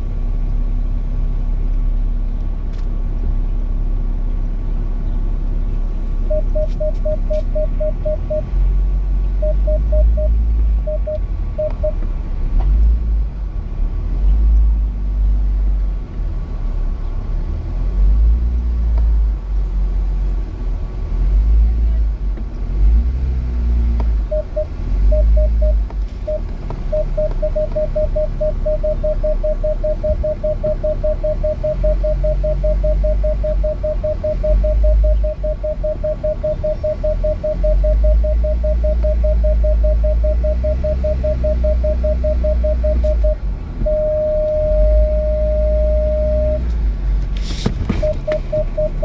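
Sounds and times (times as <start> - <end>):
parking sensor beeping: 6.2 - 8.5, 9.3 - 12.0, 24.2 - 46.7, 47.9 - 49.0.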